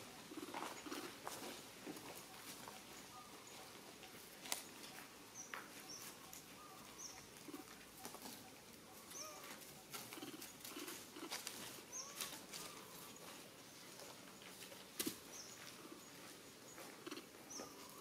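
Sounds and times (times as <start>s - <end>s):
rustles in dry leaf litter: 11.2s - 13.5s.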